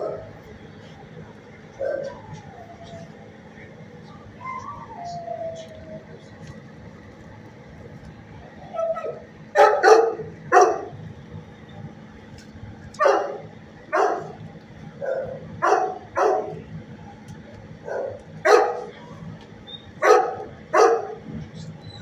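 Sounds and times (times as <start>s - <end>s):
dogs barking: 0.0s - 0.4s, 1.7s - 3.1s, 8.7s - 11.0s, 13.0s - 14.4s, 15.0s - 16.6s, 17.8s - 19.2s, 19.9s - 21.3s.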